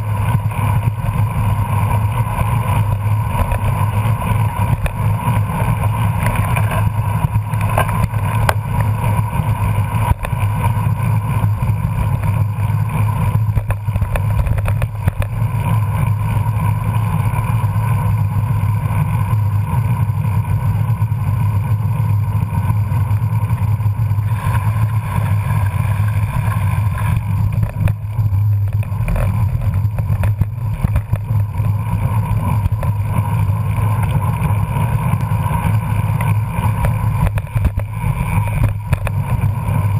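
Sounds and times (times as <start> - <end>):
bike tyres rumbling on pavement: 0.0 - 39.9.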